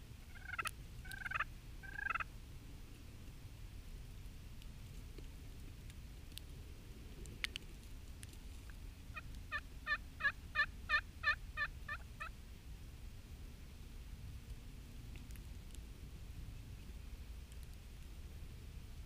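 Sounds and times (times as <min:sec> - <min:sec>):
wild turkey yelps: 0:00.3 - 0:02.3, 0:09.1 - 0:12.3.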